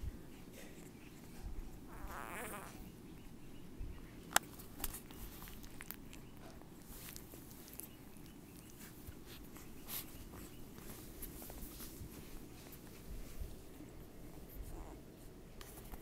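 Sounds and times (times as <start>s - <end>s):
puppies rustling on towel: 0.0s - 16.0s
puppy squeaking: 1.9s - 2.9s.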